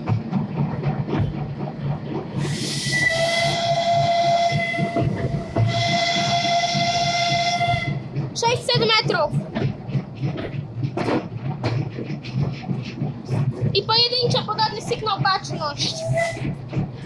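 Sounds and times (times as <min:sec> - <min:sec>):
moving train rumble: 0:00.0 - 0:17.0
steam hissing: 0:02.4 - 0:07.7
steam whistle blasts: 0:02.5 - 0:08.0.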